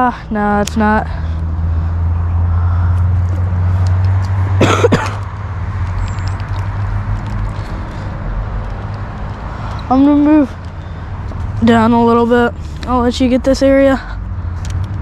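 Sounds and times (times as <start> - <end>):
person coughing: 4.5 - 5.2.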